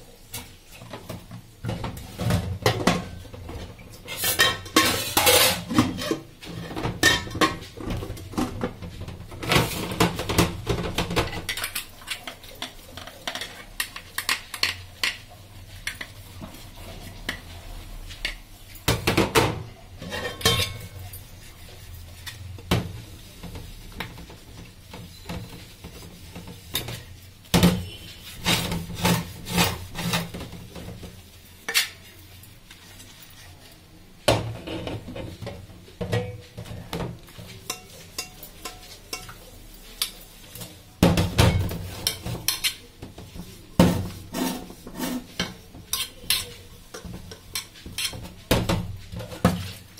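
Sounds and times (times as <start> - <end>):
scrubber scraping metal pot: 4.0 - 7.7, 20.0 - 22.5, 27.7 - 30.6, 43.8 - 48.4.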